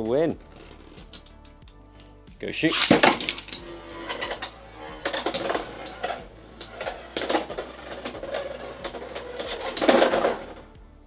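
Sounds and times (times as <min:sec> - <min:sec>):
spinning tops rattling and scraping: 0:02.6 - 0:10.7
spinning tops clacking: 0:02.7 - 0:10.6.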